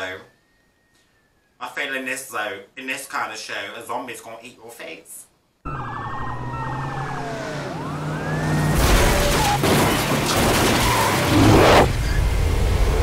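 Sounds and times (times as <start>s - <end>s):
police sirens wailing: 5.6s - 11.9s
car engines: 5.7s - 13.0s.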